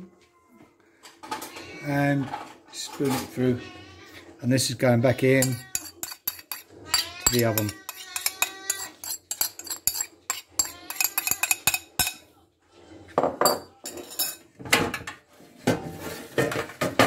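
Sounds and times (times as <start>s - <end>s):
metal spoon clinking on dishes: 5.3s - 12.3s, 13.4s - 14.5s.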